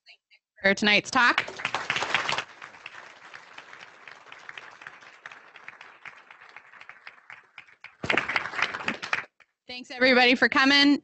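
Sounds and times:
audience applause: 0:01.3 - 0:09.4.

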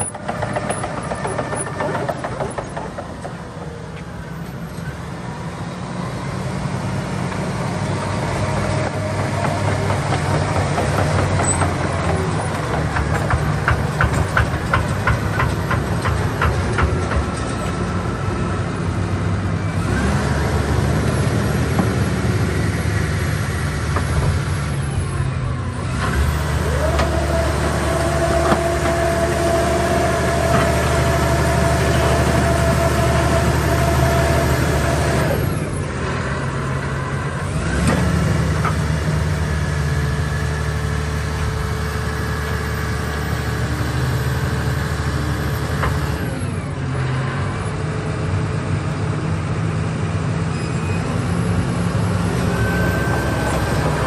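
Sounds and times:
diesel engine running: 0:00.0 - 0:54.0
hydraulic whine: 0:19.5 - 0:35.9, 0:50.5 - 0:54.0.

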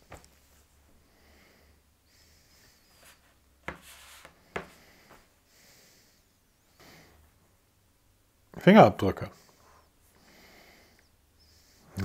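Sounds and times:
soft rustle: 0:02.6 - 0:05.3.

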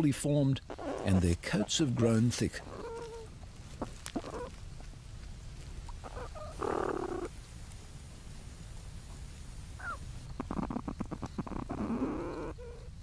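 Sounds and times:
steady low rumble: 0:00.0 - 0:11.8
young platypuses squeaking: 0:00.6 - 0:01.8, 0:02.6 - 0:04.6, 0:05.9 - 0:07.3, 0:09.8 - 0:12.9.

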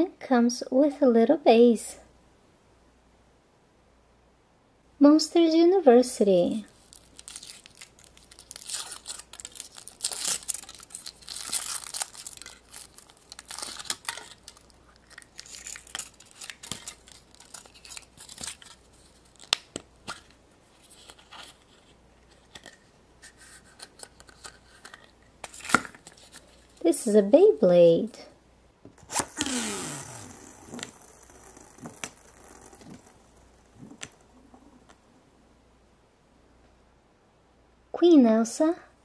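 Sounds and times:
foil wrapper crinkling and tearing: 0:06.7 - 0:20.3, 0:24.1 - 0:26.6, 0:29.0 - 0:34.4.

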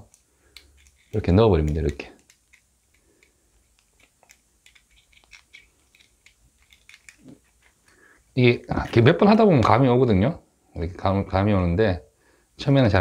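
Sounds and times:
metal pick clicking in padlock: 0:00.1 - 0:07.2.

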